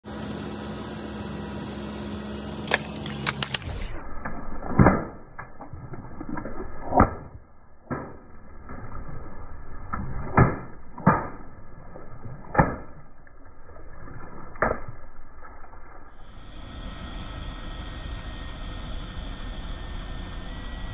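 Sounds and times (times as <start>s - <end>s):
water spraying onto pavement: 2.6s - 3.8s
water balloons popping: 2.6s - 16.2s.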